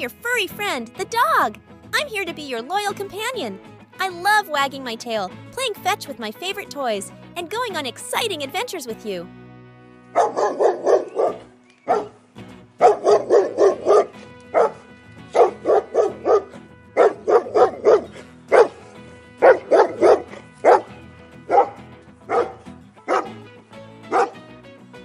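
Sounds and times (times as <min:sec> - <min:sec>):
soft background music: 0:00.0 - 0:25.0
dog barking: 0:10.1 - 0:12.2, 0:12.8 - 0:23.4, 0:24.1 - 0:24.4.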